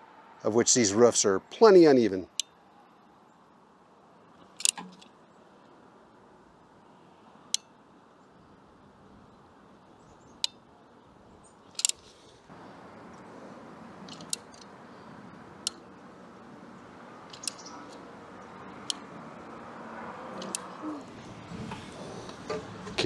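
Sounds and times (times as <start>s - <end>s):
caulking gun clicks: 11.8s - 12.0s.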